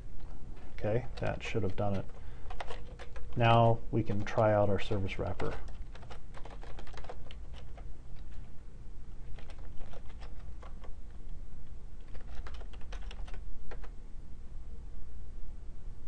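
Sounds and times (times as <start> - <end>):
faint low hum: 0.0 - 16.0
computer keyboard typing: 0.2 - 8.3, 9.2 - 11.1, 12.0 - 14.0.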